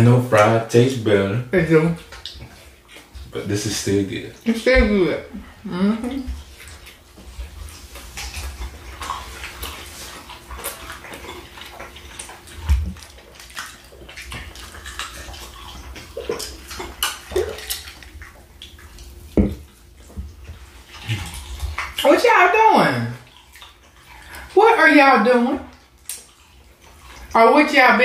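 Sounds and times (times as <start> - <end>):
close chewing and mouth noises: 0.0 - 22.3, 23.0 - 27.8
low thump: 19.4 - 19.6.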